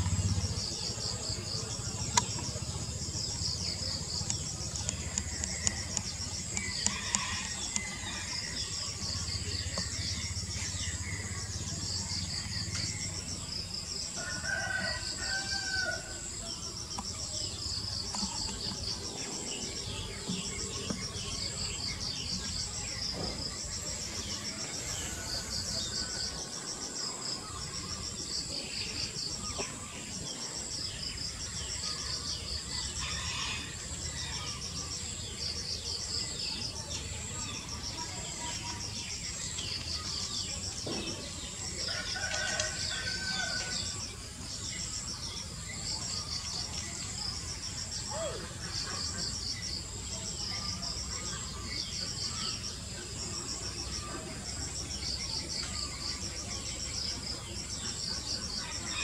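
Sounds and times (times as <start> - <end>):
insects chirping: 0.0 - 59.0
rooster crowing: 14.2 - 16.2.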